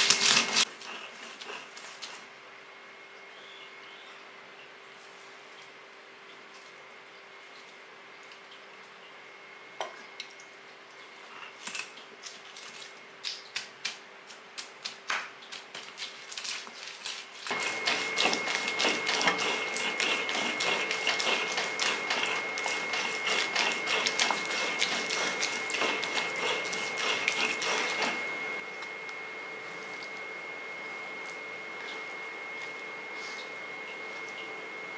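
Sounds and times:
stone roller grinding on stone: 0.0 - 2.2, 17.5 - 28.6.

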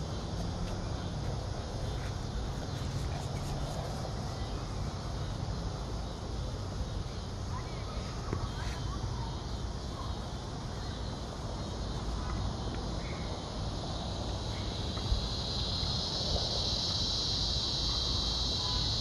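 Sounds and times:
insect chorus drone: 0.0 - 19.0.

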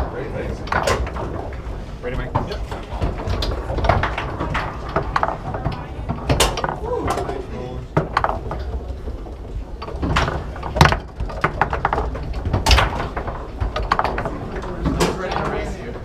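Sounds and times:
foosball ball and men clacking: 0.0 - 16.0.

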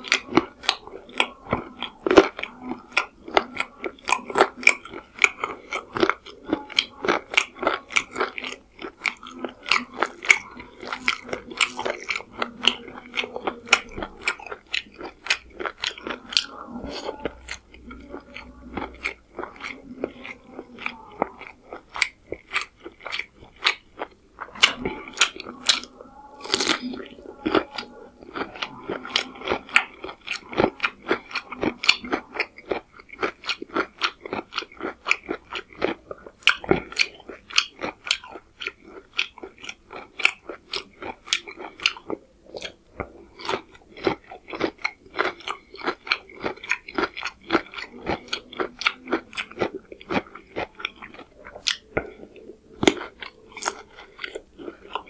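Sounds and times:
chewing and crunching cucumber: 0.0 - 55.0.

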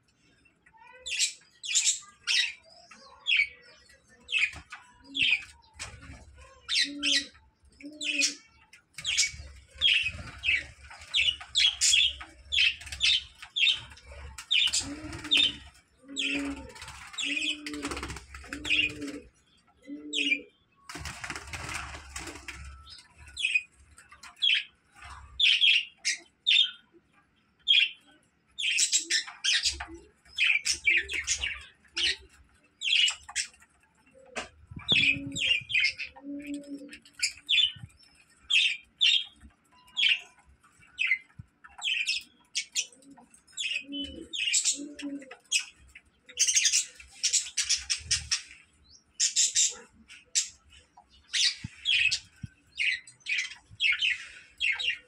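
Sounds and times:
wings fluttering: 9.0 - 19.3, 20.9 - 23.3.

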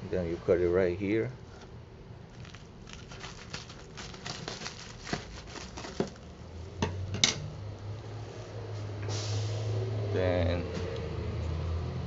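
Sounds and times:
bubble wrap crinkling: 2.2 - 6.6
scissors cutting bubble wrap: 2.3 - 6.3.

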